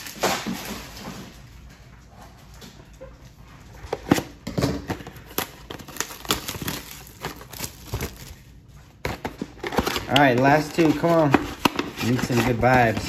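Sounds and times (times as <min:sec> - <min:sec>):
packaging crinkling: 0:03.8 - 0:13.0.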